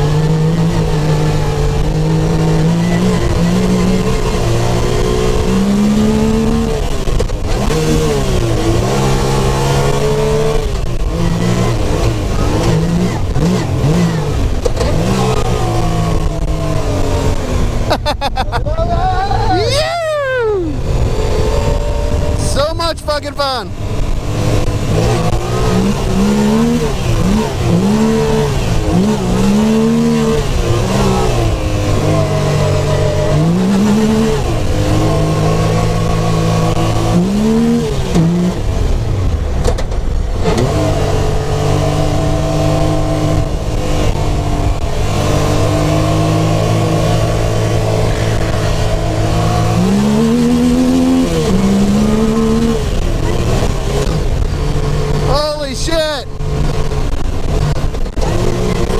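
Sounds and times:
engine revving through gears: 0.0 - 18.1, 20.6 - 58.9.

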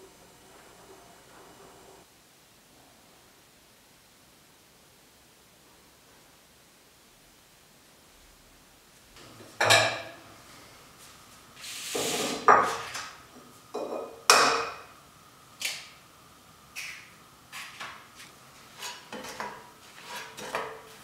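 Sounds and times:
bowl and pans knocking on counter: 9.6 - 10.2, 13.8 - 14.8.

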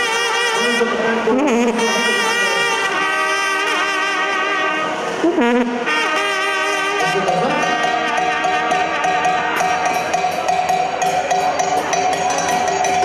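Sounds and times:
low sliding brass note: 0.0 - 10.2
brass section playing chords: 0.0 - 11.0.

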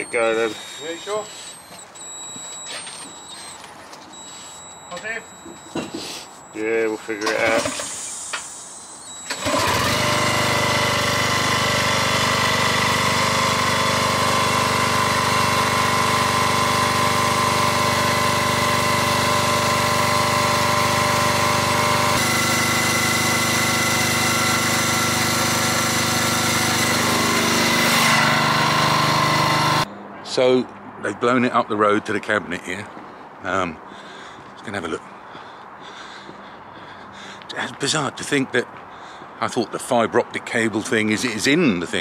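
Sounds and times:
cable blowing machine running: 0.0 - 6.7, 7.3 - 29.9.

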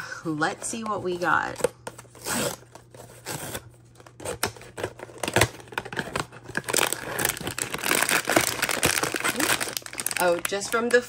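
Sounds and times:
cardboard box tearing open: 2.1 - 3.6, 4.2 - 10.2
foil bag crinkling: 4.7 - 11.0.

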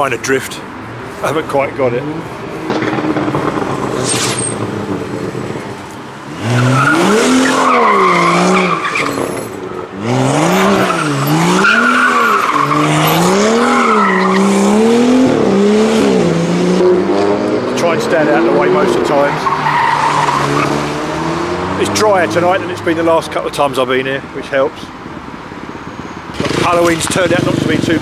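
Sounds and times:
car engine revving: 1.9 - 23.2, 26.3 - 28.0
tyres squealing: 6.3 - 14.8, 18.8 - 22.9.

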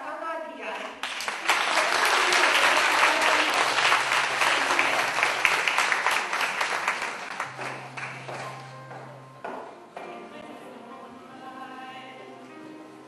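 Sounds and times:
audience applauding: 1.0 - 8.6.

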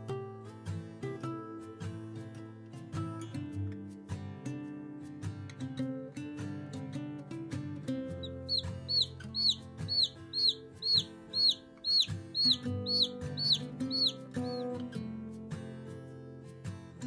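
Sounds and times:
acoustic guitar music: 0.0 - 17.0
baby chick peeping: 8.2 - 14.8.

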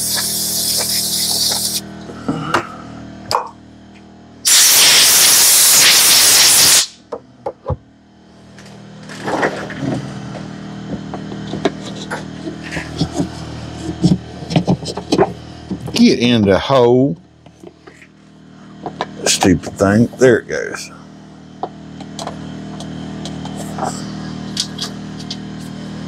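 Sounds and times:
hissing spray: 0.0 - 1.8, 4.5 - 7.0
air compressor humming: 0.0 - 26.0.

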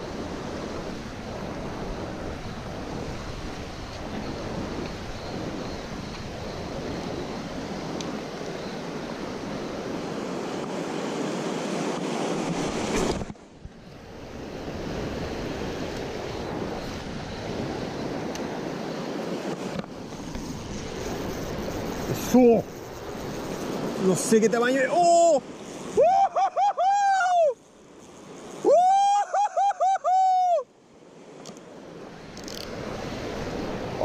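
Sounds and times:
wind buffeting microphone: 0.0 - 24.1.

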